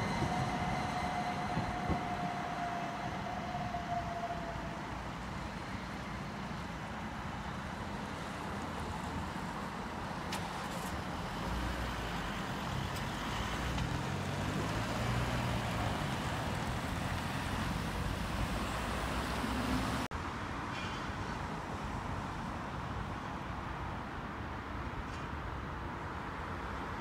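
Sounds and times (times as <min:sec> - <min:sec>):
cars driving over crossing: 0:00.0 - 0:20.1
steady traffic hum: 0:00.0 - 0:27.0.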